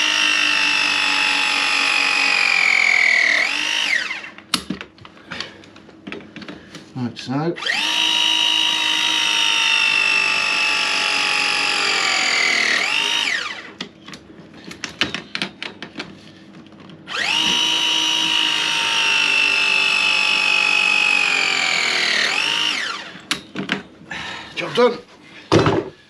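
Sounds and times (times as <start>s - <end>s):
press tool motor whine: 0.0s - 4.4s, 7.6s - 13.8s, 17.1s - 23.3s.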